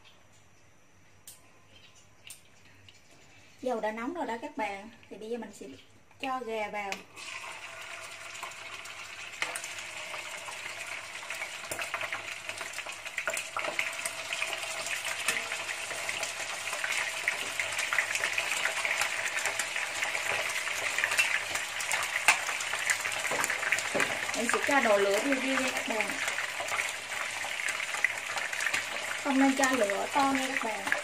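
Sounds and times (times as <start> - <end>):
chicken sizzling in hot oil: 7.1 - 31.0.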